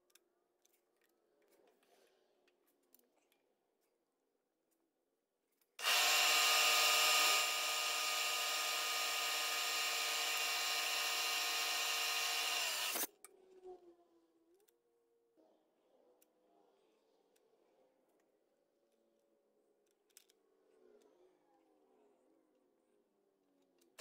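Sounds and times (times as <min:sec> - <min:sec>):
drill motor whine: 0:05.8 - 0:13.1.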